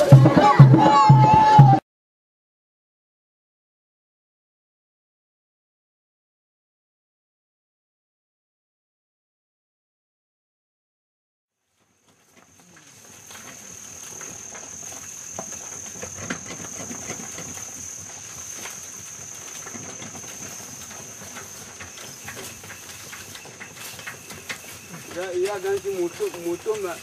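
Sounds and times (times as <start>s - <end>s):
shuffling footsteps: 11.6s - 27.0s
cargo wagon rattling: 11.9s - 27.0s.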